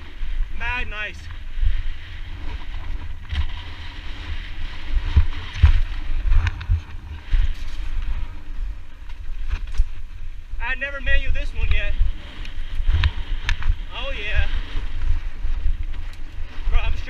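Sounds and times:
wind rumbling on microphone: 0:00.0 - 0:17.0
bike knocking and rattling on rocks: 0:02.4 - 0:08.2, 0:09.0 - 0:10.1.

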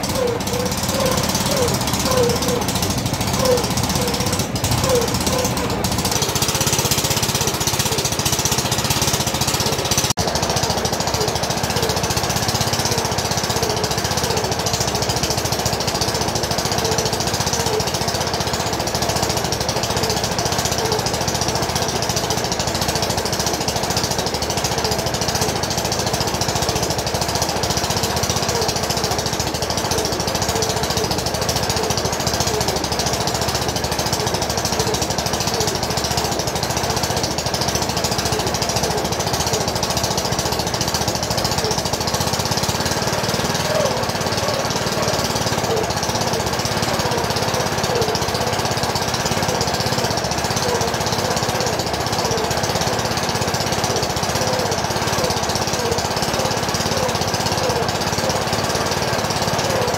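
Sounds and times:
fast knocking rattle: 0:00.0 - 0:59.9
small engine running: 0:00.0 - 0:59.9.

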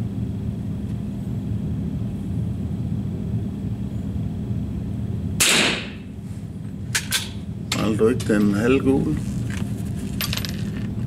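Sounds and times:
steady low hum: 0:00.0 - 0:11.0
rifle shot: 0:05.4 - 0:06.0.

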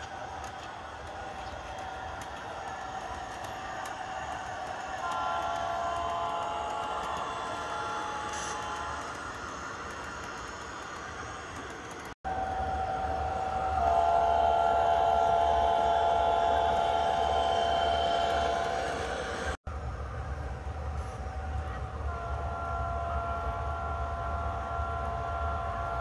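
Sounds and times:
low locomotive engine rumble: 0:00.0 - 0:26.0
multi-chime air horn: 0:05.0 - 0:09.1.

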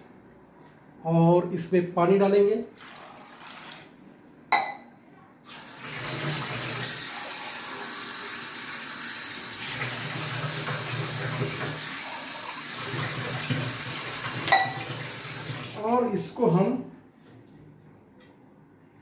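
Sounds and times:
tap water splashing into sink: 0:12.8 - 0:15.8.

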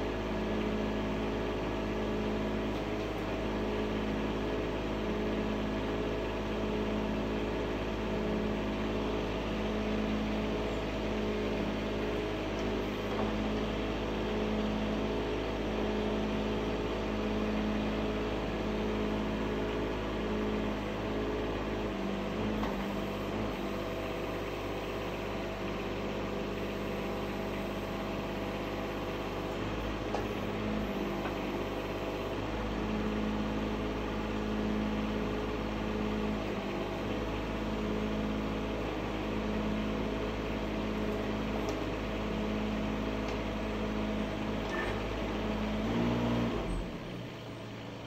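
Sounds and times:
small diesel engine running: 0:00.0 - 0:48.0.

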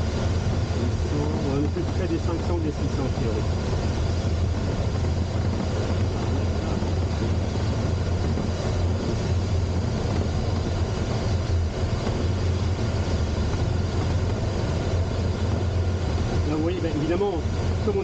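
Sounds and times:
cockpit airflow noise: 0:00.0 - 0:18.0.

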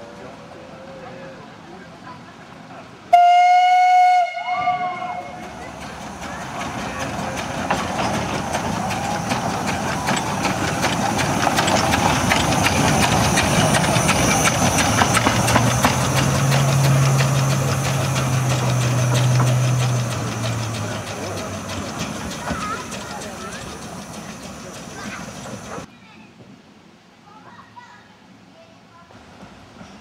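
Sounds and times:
steam hissing: 0:03.2 - 0:25.9
steam locomotive rods clanking: 0:04.6 - 0:25.9.

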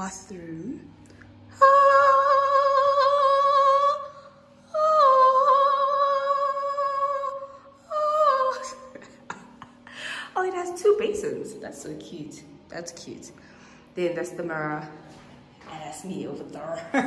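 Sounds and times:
woman singing with vibrato: 0:01.5 - 0:09.6.

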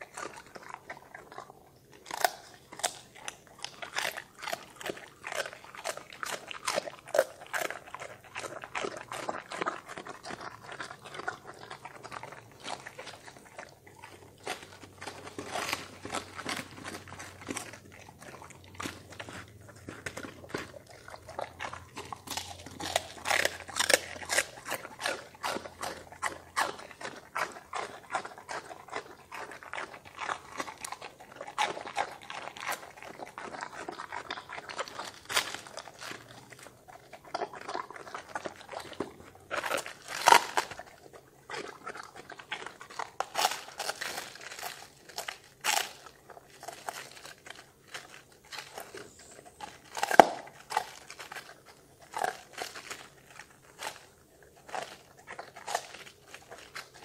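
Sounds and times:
dog chewing crunchy cabbage: 0:00.0 - 0:57.0.

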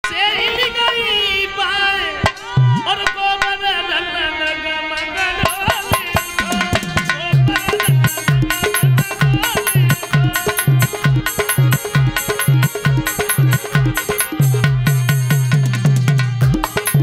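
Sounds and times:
man singing through microphone: 0:00.0 - 0:13.0
hand drum: 0:05.4 - 0:17.0
low drum strokes: 0:05.9 - 0:09.1.

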